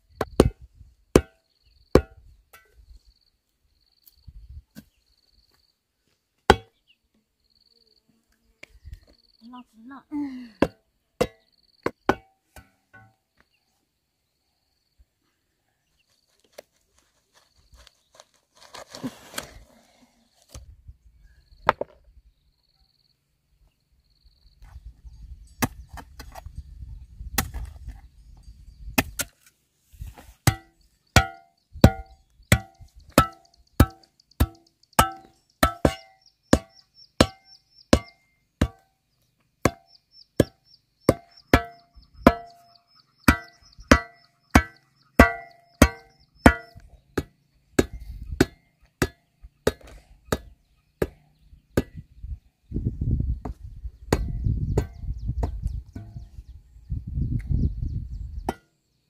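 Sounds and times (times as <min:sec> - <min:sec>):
chopping blows with ringing tone: 0:39.6 - 0:42.7, 0:43.3 - 0:51.2.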